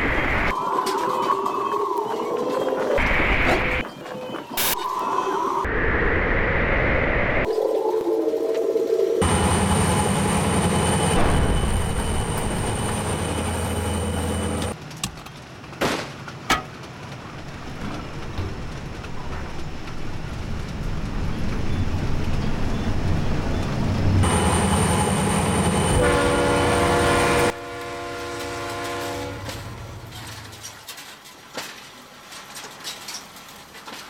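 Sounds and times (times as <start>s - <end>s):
diesel locomotive engine humming: 9.2s - 30.8s
train whistle: 24.2s - 30.0s.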